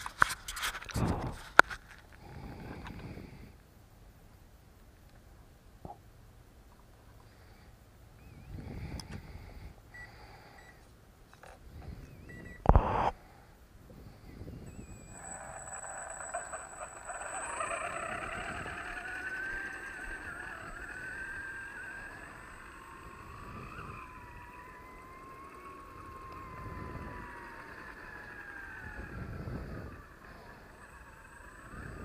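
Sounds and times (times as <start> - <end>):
toy car motor whining: 14.6 - 32.0
thin high tone: 14.7 - 28.8.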